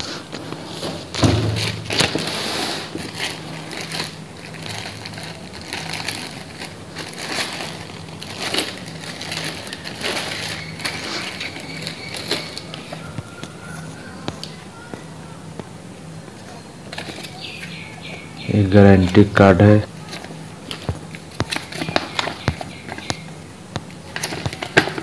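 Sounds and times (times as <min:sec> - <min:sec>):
plastic wrapping crinkling: 0:00.2 - 0:14.6, 0:19.9 - 0:25.0.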